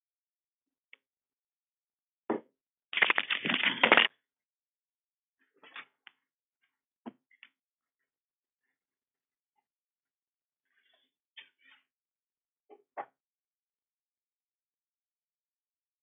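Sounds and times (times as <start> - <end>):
crackly rustling and scraping: 3.0 - 4.1.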